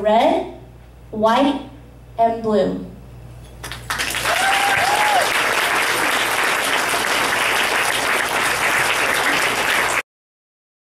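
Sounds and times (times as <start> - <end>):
audience applauding: 3.6 - 10.0
person cheering: 4.2 - 5.7.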